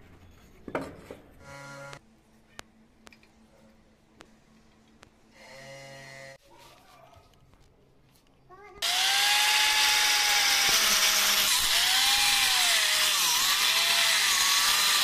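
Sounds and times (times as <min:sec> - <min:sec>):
angle grinder cutting stone: 0:08.8 - 0:15.0.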